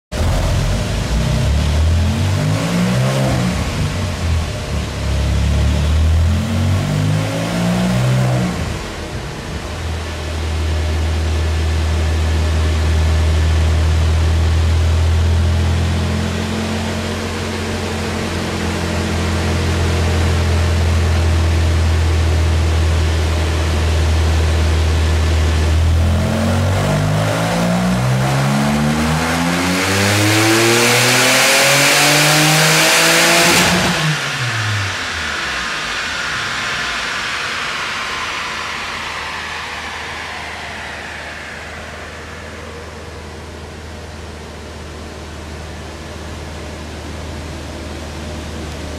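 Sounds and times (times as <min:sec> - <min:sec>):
sports car engine revving: 0:00.2 - 0:37.4.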